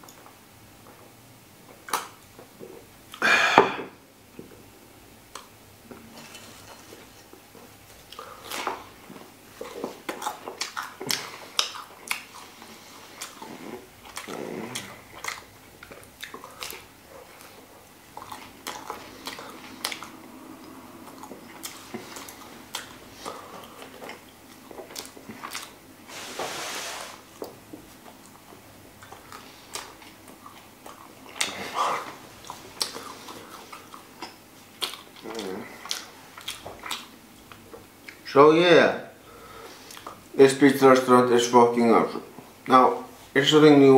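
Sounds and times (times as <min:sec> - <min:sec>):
person chewing food: 0:05.3 - 0:25.9, 0:27.2 - 0:38.2, 0:39.3 - 0:40.3.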